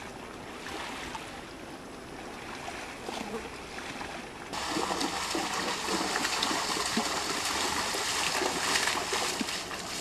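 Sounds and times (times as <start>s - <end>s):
shallow seawater splashing: 2.2s - 10.0s.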